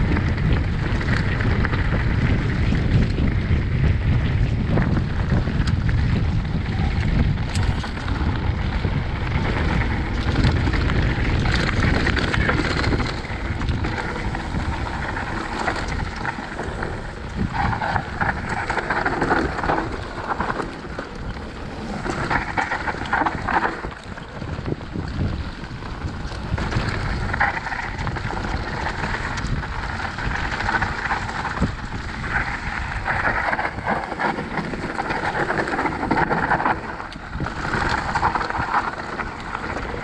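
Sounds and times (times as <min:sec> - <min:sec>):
bike tyres rumbling over dirt: 0:00.0 - 0:40.0
wind buffeting microphone: 0:00.0 - 0:40.0.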